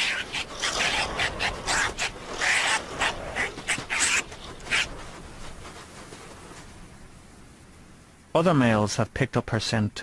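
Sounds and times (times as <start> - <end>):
honey badgers harsh calls: 0.0 - 5.0.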